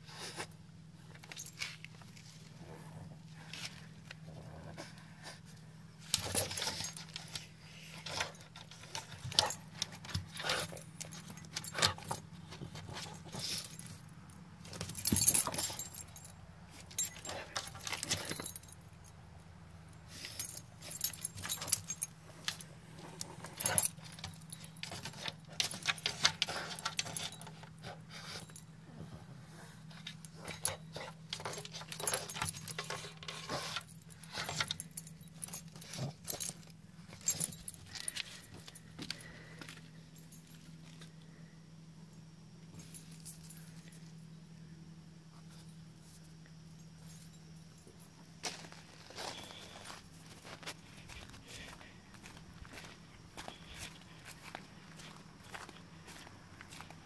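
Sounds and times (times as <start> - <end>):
low steady hum: 0.0 - 57.0
metal collar jingling: 6.1 - 7.4, 8.0 - 19.2, 20.1 - 28.7, 29.9 - 39.1.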